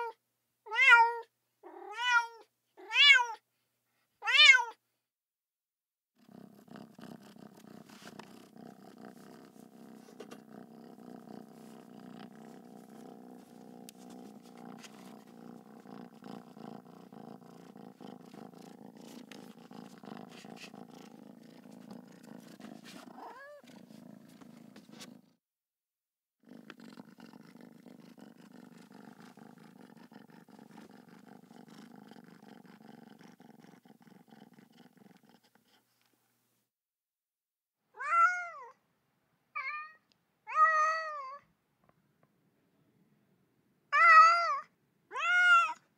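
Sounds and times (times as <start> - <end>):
cat meow: 0.0 - 3.4, 4.2 - 4.8, 23.2 - 23.7, 37.9 - 38.8, 39.6 - 41.5, 43.9 - 45.8
cat purring: 6.2 - 25.4, 26.4 - 36.1.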